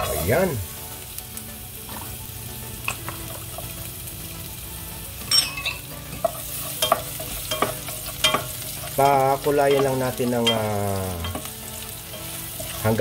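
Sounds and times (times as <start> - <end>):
garlic sizzling in oil: 0.0 - 13.0
spatula scraping and tapping pan: 6.0 - 11.6.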